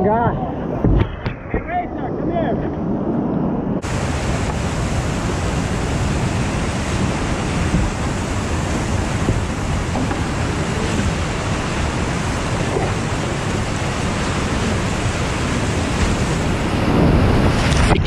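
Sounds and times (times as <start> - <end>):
whitewater rapids rushing: 3.8 - 18.0.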